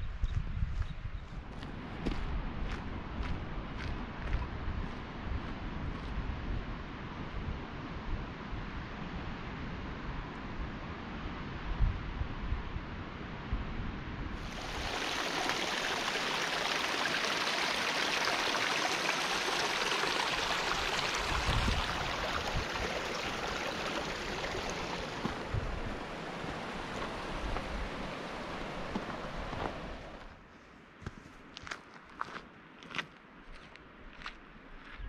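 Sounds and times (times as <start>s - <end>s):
mountain stream rushing water: 14.4s - 30.3s.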